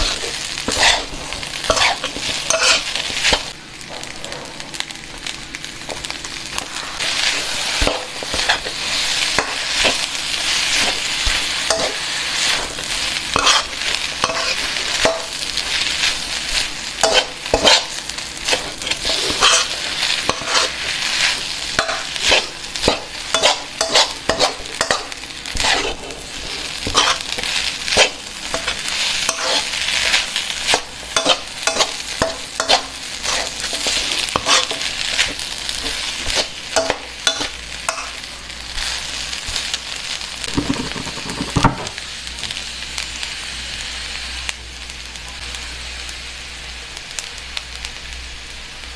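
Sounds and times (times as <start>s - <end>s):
metal spatula scraping a pan: 0.0s - 4.5s, 6.7s - 38.2s
rice sizzling in a wok: 0.0s - 48.9s.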